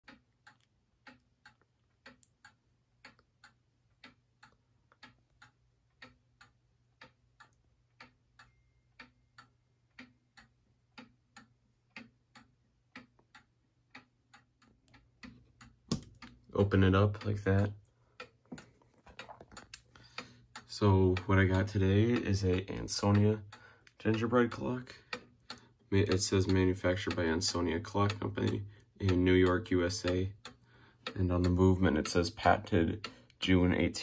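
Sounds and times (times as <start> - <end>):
kitchen clock ticking faintly: 0.0 - 34.0.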